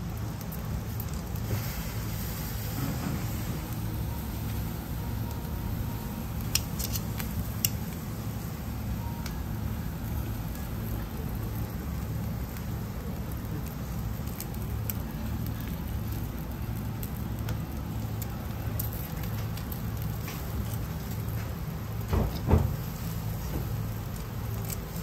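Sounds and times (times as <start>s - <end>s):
seafood sizzling on a grill: 0.0s - 25.0s
steady low hum: 0.0s - 25.0s
small pops and crackles: 12.5s - 25.0s.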